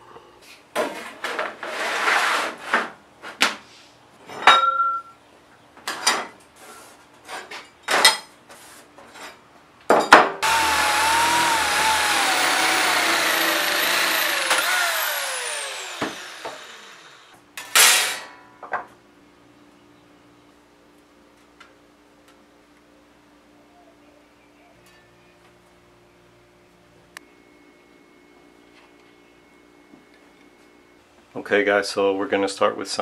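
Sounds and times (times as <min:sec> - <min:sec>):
electric metal shears cutting: 0:10.4 - 0:17.4.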